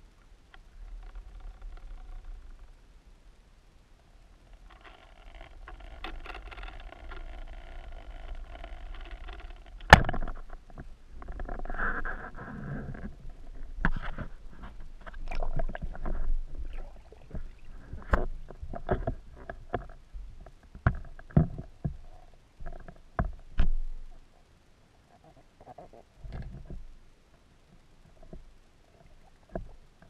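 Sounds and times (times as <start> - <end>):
muffled underwater hiss: 10.3 - 20.6
rushing water: 15.2 - 18.1.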